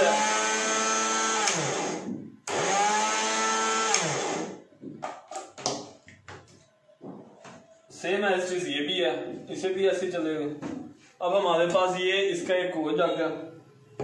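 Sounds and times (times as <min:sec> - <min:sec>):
blender motor whining: 0:00.0 - 0:04.6.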